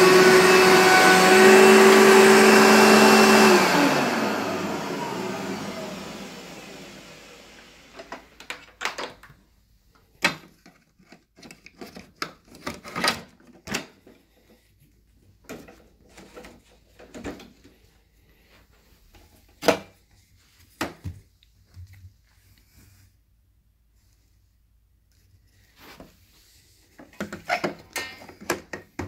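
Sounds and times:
plastic clicks and rattles: 8.0s - 9.4s, 10.2s - 14.2s.

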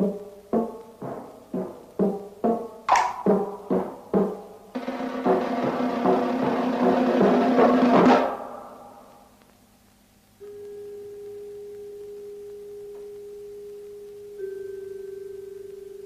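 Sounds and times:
drum and percussion music: 0.0s - 8.8s
pure held tone: 10.4s - 16.0s.

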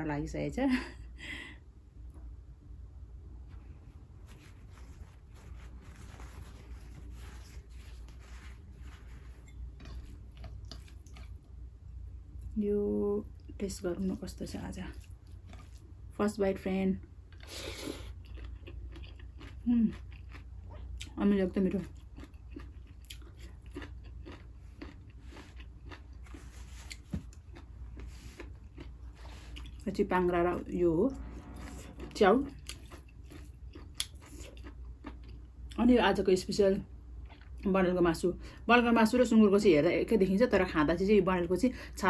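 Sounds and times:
steady low hum: 0.0s - 42.0s
chewing food: 4.3s - 12.6s, 14.8s - 16.2s, 17.0s - 35.9s, 36.8s - 37.8s.

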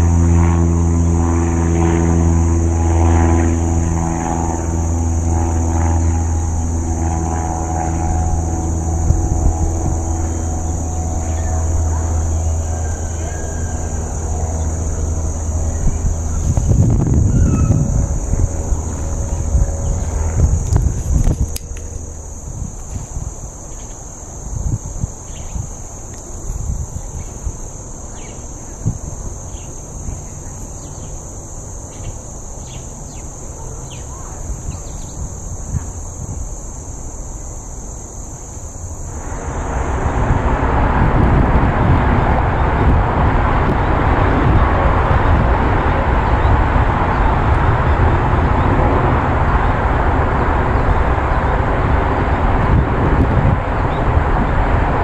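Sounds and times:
low rumble: 0.0s - 23.6s, 39.0s - 55.0s
high-pitched insect drone: 0.0s - 55.0s
steady rushing noise: 0.0s - 55.0s.

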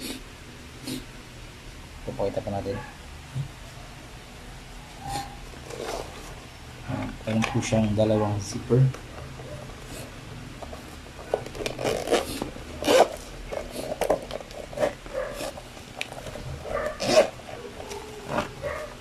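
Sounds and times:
zipper scraping open: 5.1s - 6.4s, 11.2s - 19.0s.

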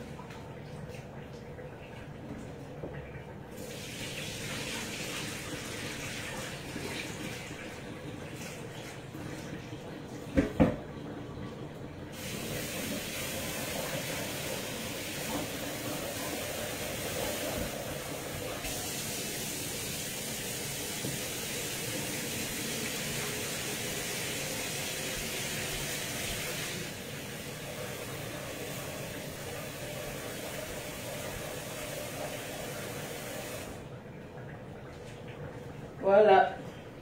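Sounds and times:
tap water running into sink: 0.0s - 35.4s.

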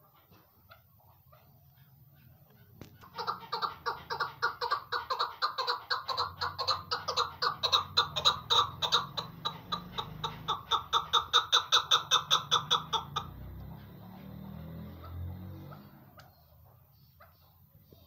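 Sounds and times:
partridge clucking call: 1.1s - 13.4s.

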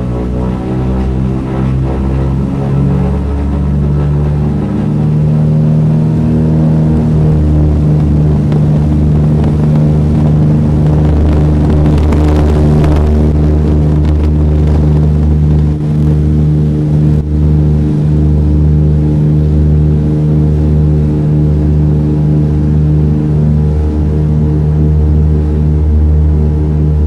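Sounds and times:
rushing noise: 0.0s - 16.0s
propeller plane engines droning: 0.0s - 27.0s.

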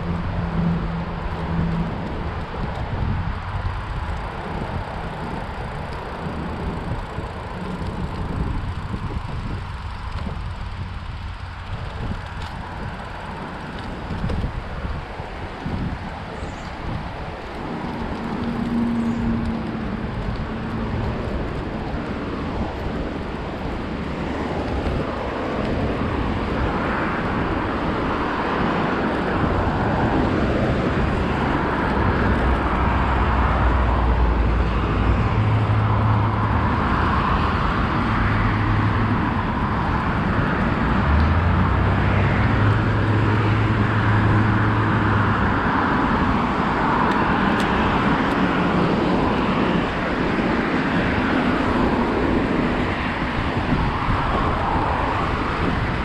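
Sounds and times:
large vehicle engine drone: 0.0s - 56.0s
road traffic passing: 0.0s - 56.0s.

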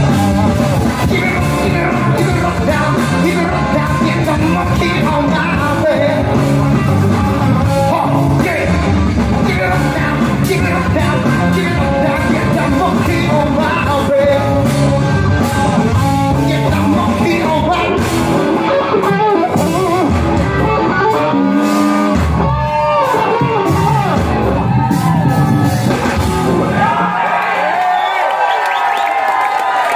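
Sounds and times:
singer's vocals: 0.0s - 21.6s
rock band playing live: 0.0s - 29.9s.

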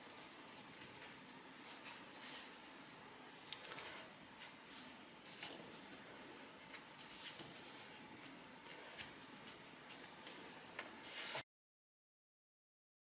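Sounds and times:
hands shaping dough on board: 3.5s - 11.4s.

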